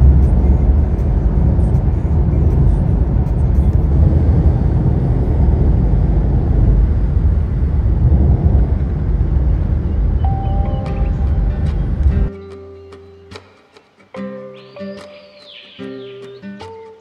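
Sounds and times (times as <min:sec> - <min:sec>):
car road rumble: 0:00.0 - 0:12.3.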